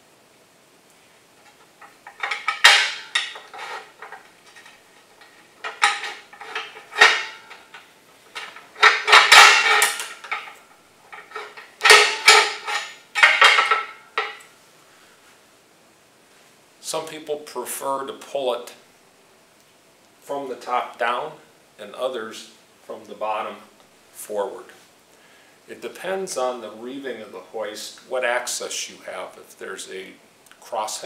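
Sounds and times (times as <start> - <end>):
metal clinking and scraping: 1.4 - 14.5.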